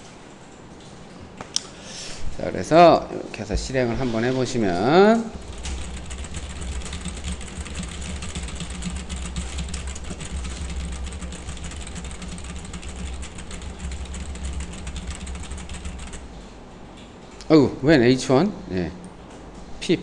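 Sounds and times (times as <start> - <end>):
low steady hum: 0.0 - 20.0
rapid keyboard typing: 4.7 - 16.5.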